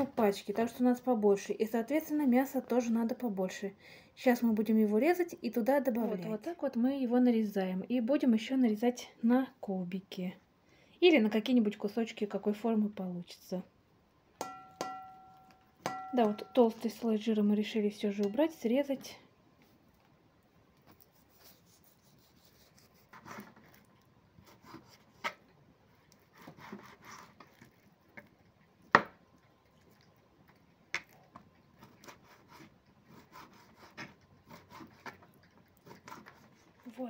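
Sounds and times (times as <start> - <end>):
knife tapping cutting board: 14.4 - 16.5
knife scraping through meat: 21.0 - 25.4, 26.1 - 27.9, 31.8 - 36.9.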